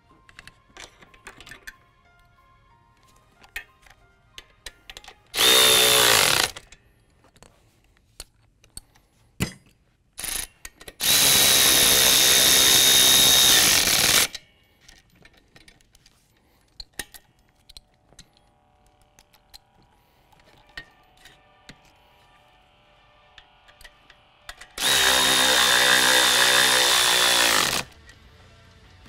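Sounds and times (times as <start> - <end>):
tools and metal parts clicking: 0.2 - 1.9, 3.4 - 11.1, 13.8 - 22.3, 23.4 - 25.7
electric ratchet motor whine: 5.4 - 6.6, 11.0 - 14.3, 24.8 - 28.0.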